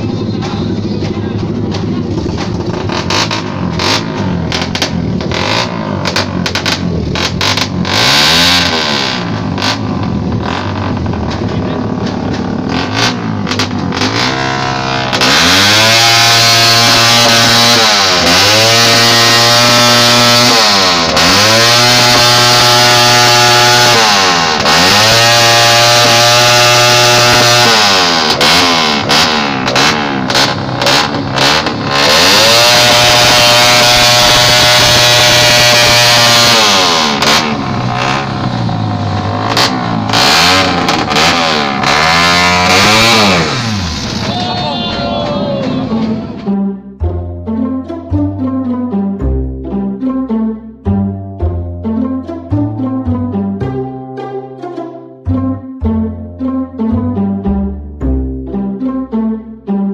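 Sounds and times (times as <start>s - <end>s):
motorcycle engine revving: 0.0s - 50.1s.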